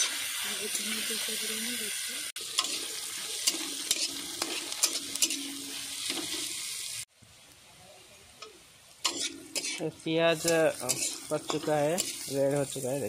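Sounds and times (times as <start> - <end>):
onions sizzling in oil: 0.0 - 13.0
metal spatula scraping pan: 2.5 - 6.4, 9.0 - 12.8.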